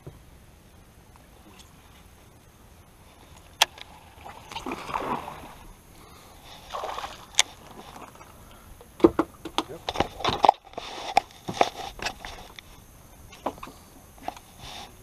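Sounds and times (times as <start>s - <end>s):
quiet water and air noise: 0.0s - 15.0s
water splashing: 3.2s - 8.6s.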